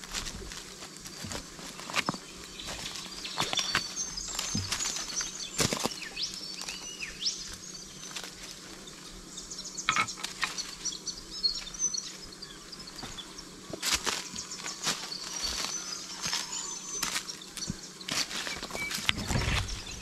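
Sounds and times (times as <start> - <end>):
footsteps on dry leaves and rocks: 0.0 - 9.3, 9.9 - 20.0
small birds chirping: 0.0 - 20.0.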